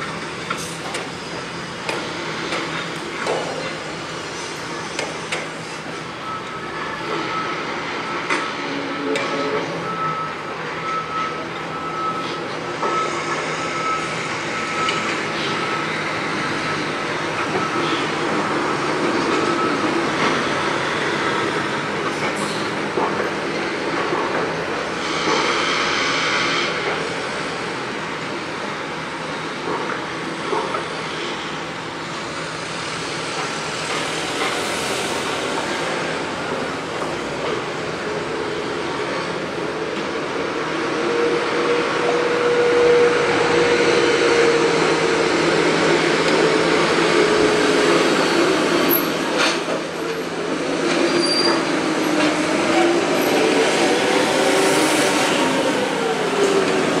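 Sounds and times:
machinery noise: 0.0 - 57.0
traffic noise: 0.0 - 57.0
reversing alarm beeping: 6.2 - 20.6.

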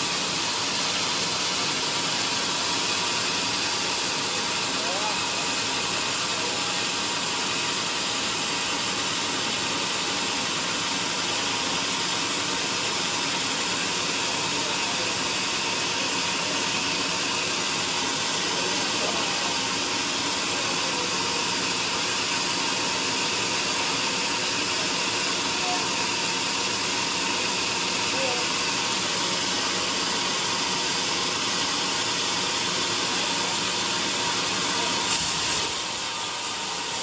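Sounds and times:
sawmill running: 0.0 - 37.0
saw blade hissing through log: 35.0 - 37.0.

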